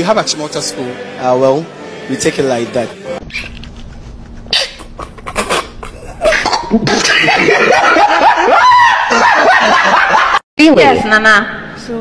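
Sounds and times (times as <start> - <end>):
people laughing: 4.8 - 10.4.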